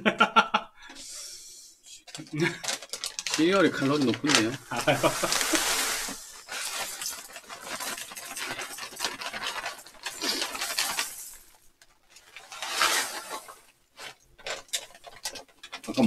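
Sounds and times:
bag crinkling: 0:02.1 - 0:16.0
dry cereal pouring into bowl: 0:02.9 - 0:11.6, 0:12.2 - 0:16.0.

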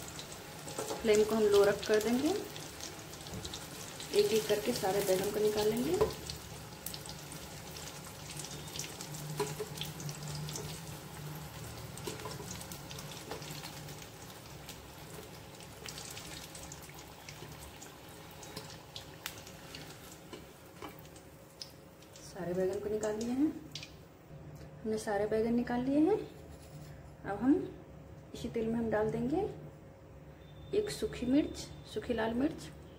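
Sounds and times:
vegetables sizzling in oil: 0:00.0 - 0:24.0.

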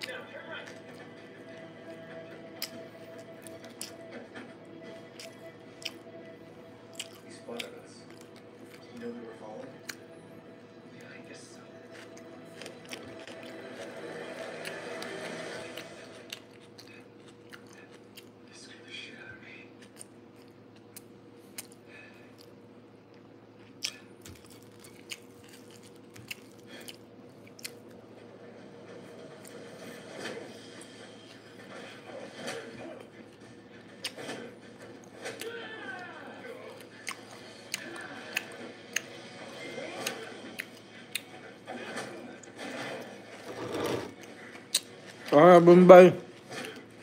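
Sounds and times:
man chewing food: 0:00.0 - 0:18.5, 0:19.8 - 0:28.2, 0:33.2 - 0:35.4, 0:36.6 - 0:41.6, 0:42.4 - 0:45.4, 0:46.3 - 0:47.0.

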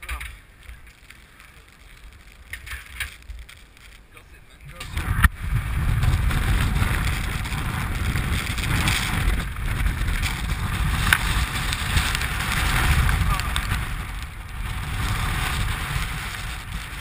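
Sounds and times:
wind buffeting microphone: 0:04.6 - 0:17.0.

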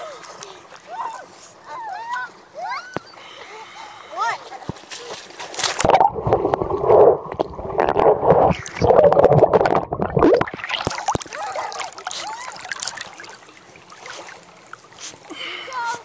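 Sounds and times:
water splashing and lapping: 0:00.0 - 0:16.0
muffled underwater churning and bubbling: 0:05.6 - 0:15.8.

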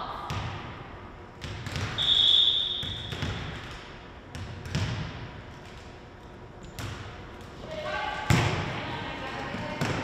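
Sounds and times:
referee's whistle: 0:02.0 - 0:03.2.

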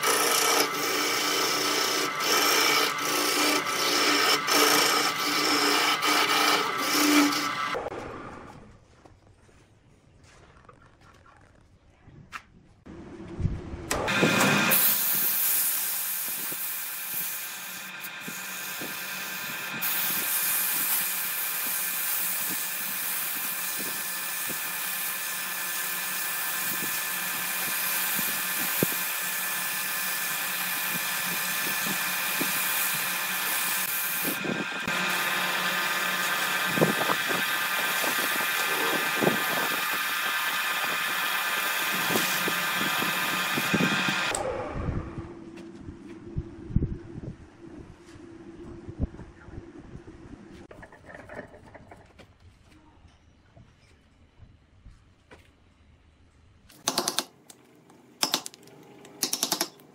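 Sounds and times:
lathe motor running: 0:00.0 - 0:07.8, 0:24.2 - 0:44.5
sandpaper sanding hiss: 0:14.8 - 0:34.4.

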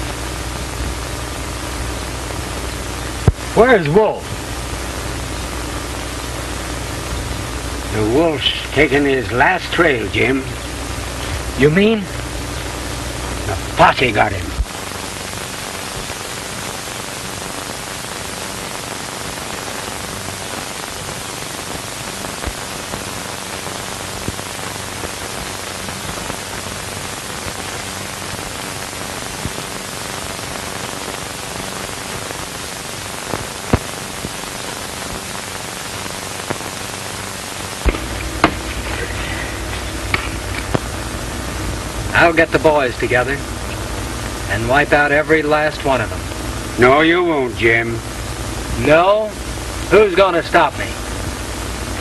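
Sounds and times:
low hum: 0:00.0 - 0:18.3, 0:35.7 - 0:52.0
crackle clicks: 0:00.0 - 0:46.8
film soundtrack hiss: 0:00.0 - 0:52.0.

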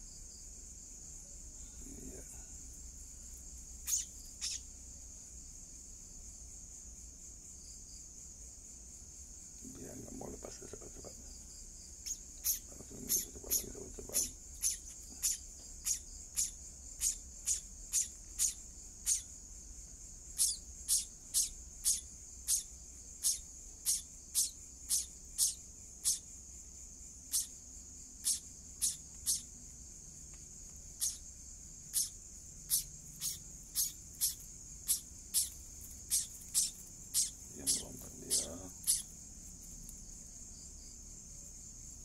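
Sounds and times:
high-pitched insect drone: 0:00.1 - 0:06.3, 0:09.0 - 0:42.0
nestlings chirping: 0:03.7 - 0:04.8, 0:11.9 - 0:26.5, 0:27.2 - 0:40.4.

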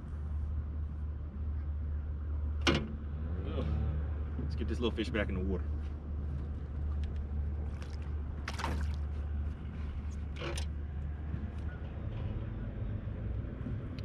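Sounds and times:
water splashing: 0:07.5 - 0:09.4.

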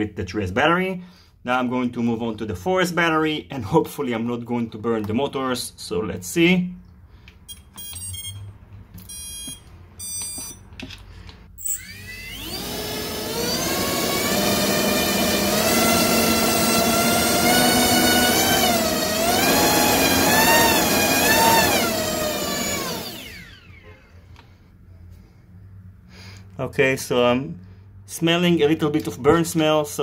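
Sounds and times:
short electronic beeps: 0:07.5 - 0:10.6
electric motor whine: 0:11.6 - 0:23.8.

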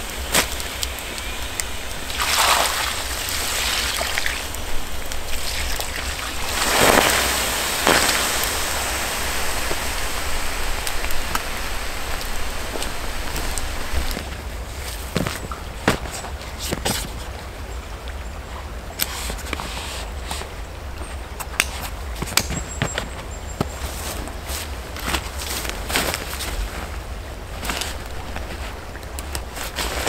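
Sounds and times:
water hissing on hot embers: 0:00.0 - 0:16.7.

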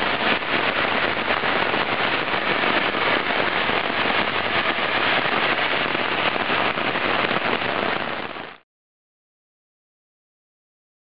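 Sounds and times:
rain hissing on wet road: 0:00.0 - 0:08.6.

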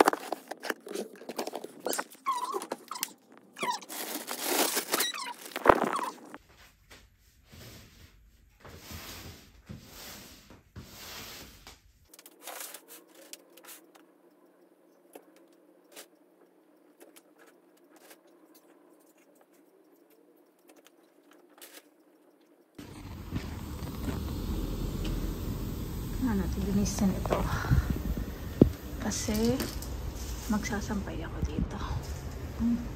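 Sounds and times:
low steady hum: 0:22.8 - 0:32.9.

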